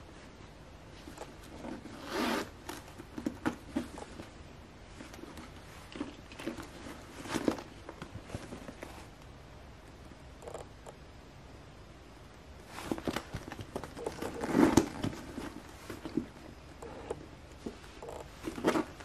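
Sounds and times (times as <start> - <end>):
metal zipper being pulled: 2.0 - 2.5
bag being handled: 4.9 - 9.1, 12.6 - 19.0.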